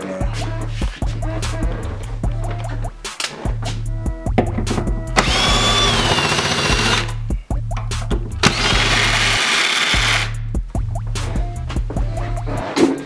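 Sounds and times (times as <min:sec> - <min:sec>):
background music with steady beat: 0:00.0 - 0:13.0
power drill running: 0:05.2 - 0:07.2, 0:08.4 - 0:10.4.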